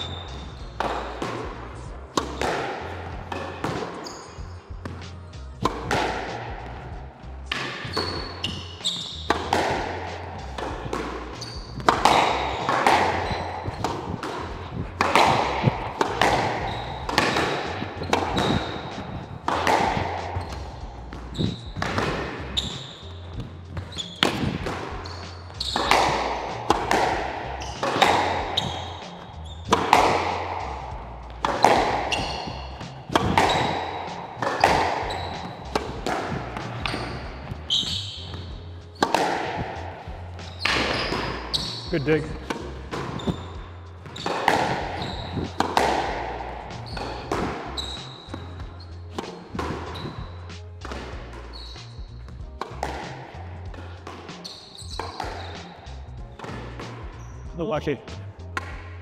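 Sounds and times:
shoes squeaking on floor: 0.0s - 59.0s
squash ball hitting rackets and walls: 0.0s - 59.0s.

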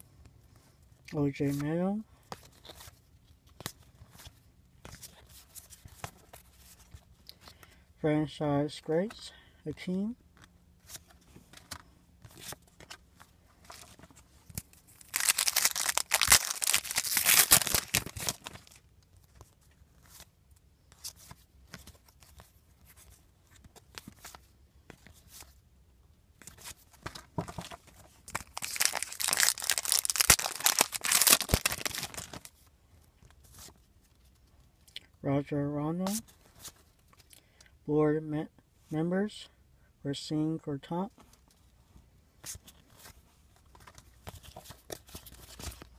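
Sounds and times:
cards rustling: 0.6s - 7.7s, 10.3s - 20.3s, 20.9s - 25.6s, 26.4s - 34.5s, 42.4s - 45.9s
foil wrapper crinkling: 14.6s - 18.8s, 28.3s - 32.5s.

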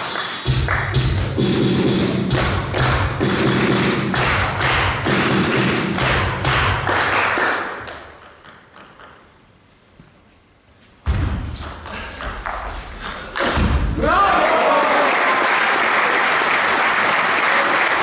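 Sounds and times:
crowd rhythmic thumping: 0.0s - 8.2s
table tennis ball pinging: 8.0s - 9.4s
loud crowd noise: 13.4s - 18.0s.

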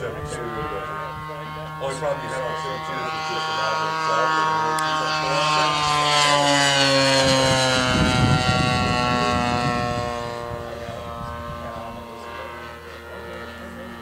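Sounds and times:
model plane engine passing: 0.0s - 14.0s.

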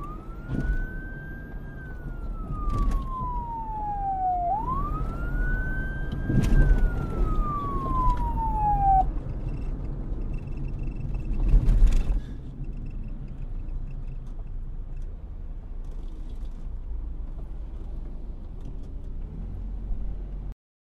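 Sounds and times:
police siren wail: 0.0s - 9.3s.

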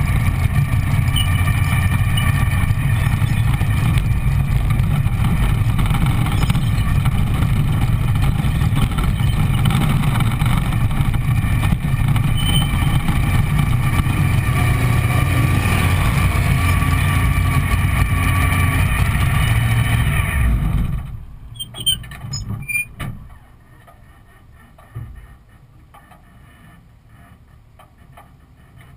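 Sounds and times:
dragster engine idling: 0.0s - 15.0s.

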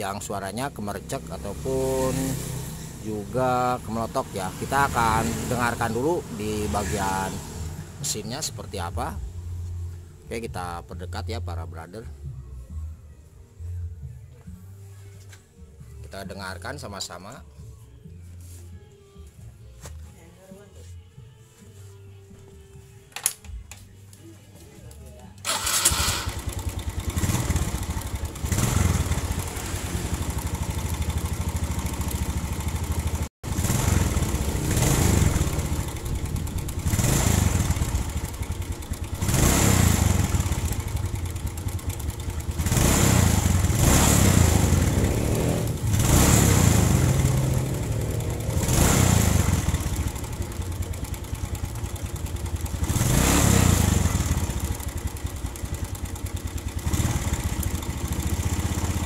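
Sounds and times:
motorcycle engine revving: 0.0s - 9.7s, 25.4s - 59.0s.

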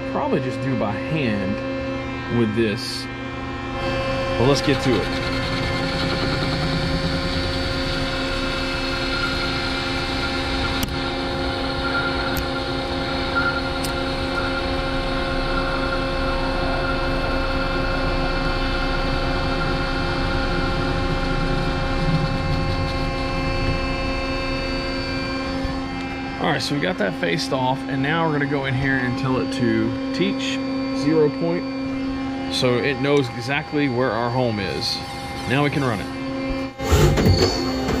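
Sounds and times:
lathe spindle whine: 0.0s - 38.0s.

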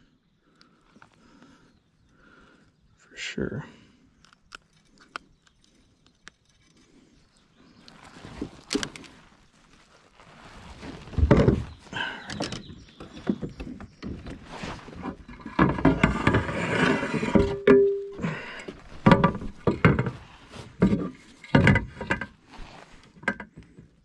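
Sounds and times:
dull thumps and knocks in kayak: 10.8s - 16.7s, 18.8s - 23.8s.

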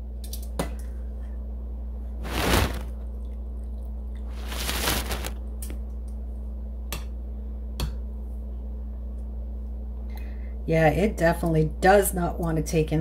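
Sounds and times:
wet rush of liquid: 2.2s - 2.9s, 4.3s - 5.3s.

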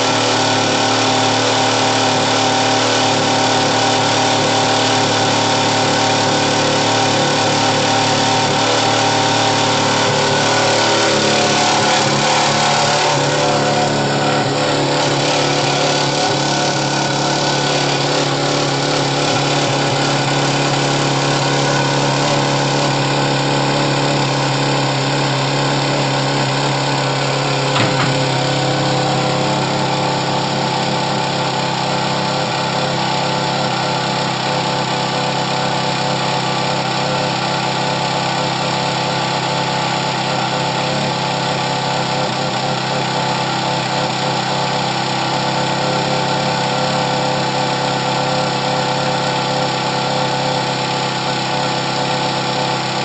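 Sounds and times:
sports car engine idling: 6.4s - 35.8s
short knock: 27.7s - 28.8s.

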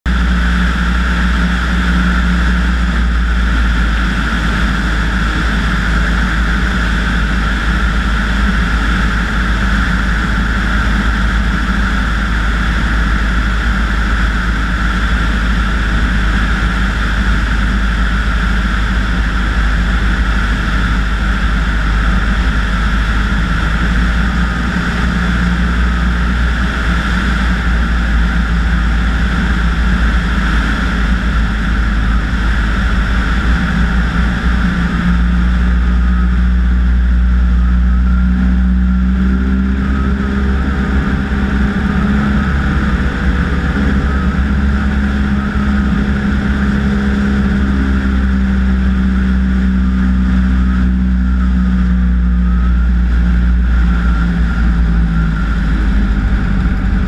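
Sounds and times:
propeller aircraft engine droning: 0.0s - 57.0s
rush of air: 0.1s - 57.0s.

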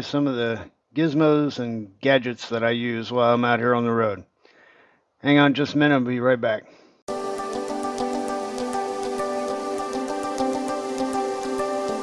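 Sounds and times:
held chords: 7.1s - 12.0s
light ticking beat: 7.4s - 12.0s.

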